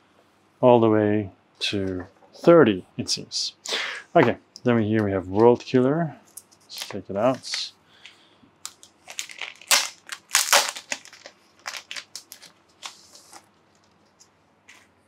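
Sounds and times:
packaging crinkling: 6.7s - 7.7s, 8.6s - 14.9s.

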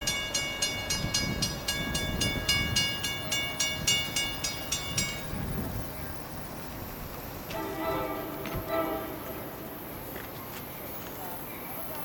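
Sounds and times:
railroad crossing bell ringing: 0.0s - 6.9s, 7.5s - 10.1s.

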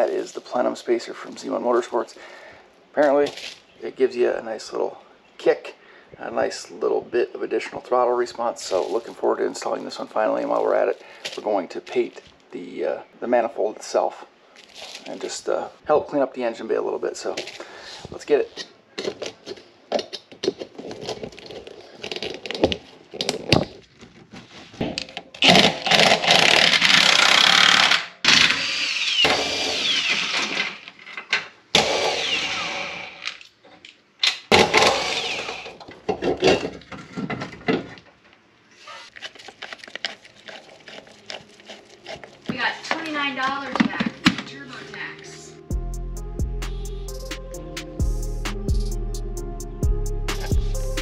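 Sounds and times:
cordless power tool whining: 25.4s - 30.8s, 31.8s - 33.4s, 34.5s - 35.8s
hand tools clicking and knocking: 40.0s - 44.5s.

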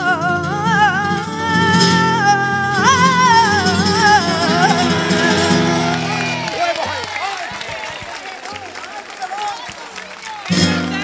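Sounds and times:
boy singing into a microphone: 0.0s - 6.0s.

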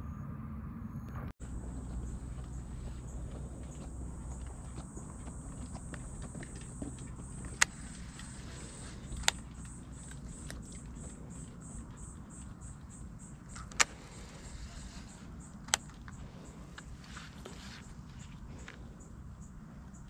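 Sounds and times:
sharp clicks: 6.5s - 16.9s.

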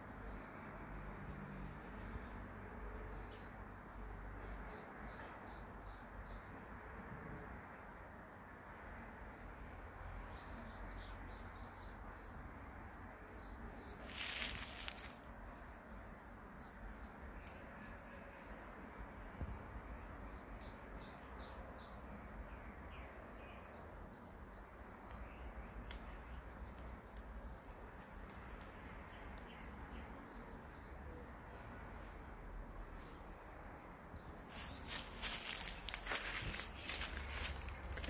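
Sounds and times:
outdoor background noise: 0.0s - 38.0s
small birds chirping: 10.2s - 38.0s.

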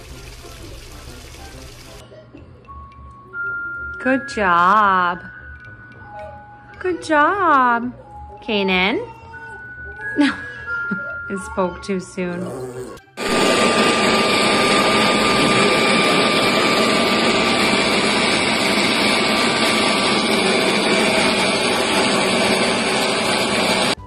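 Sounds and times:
leaf blower running: 12.4s - 24.0s.

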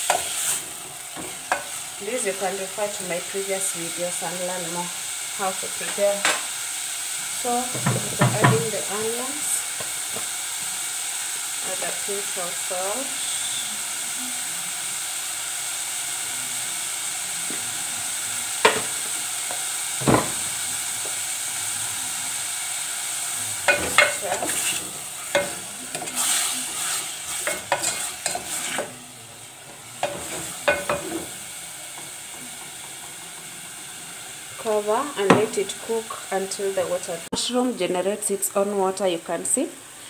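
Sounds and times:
mushrooms sizzling in oil: 0.0s - 40.0s
wooden spoon scraping a pot: 23.7s - 29.0s.

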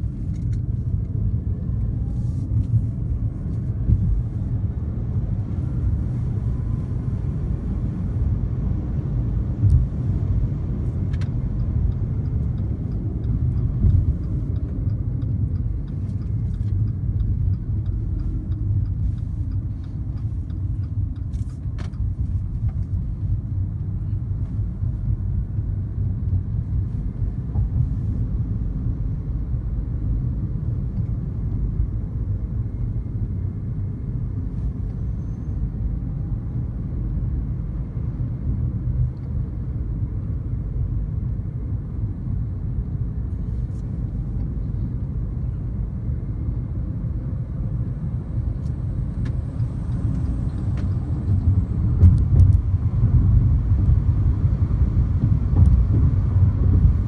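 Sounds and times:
road and tyre rumble in car: 0.0s - 57.0s.

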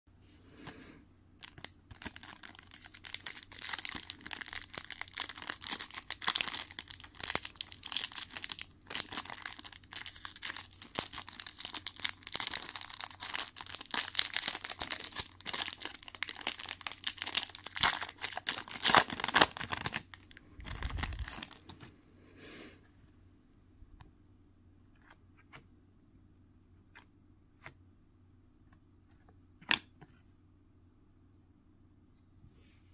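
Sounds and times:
foil wrapper crinkling and tearing: 1.4s - 21.8s.

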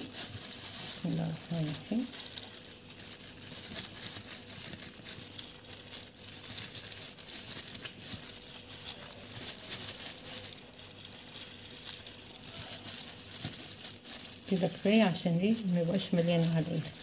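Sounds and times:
plastic gloves crinkling: 0.0s - 17.0s.

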